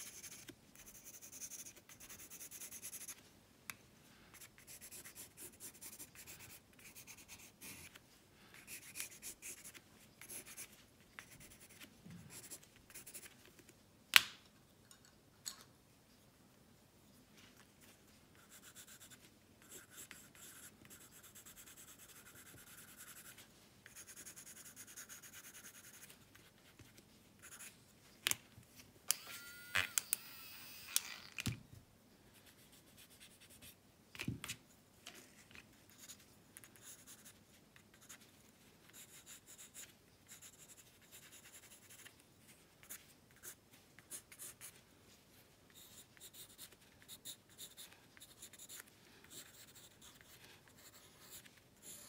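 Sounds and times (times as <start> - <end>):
pencil scratching on paper: 0.0 - 3.2, 4.4 - 8.0, 8.6 - 13.3, 18.4 - 27.7, 35.9 - 38.2, 38.9 - 42.1, 45.7 - 52.0.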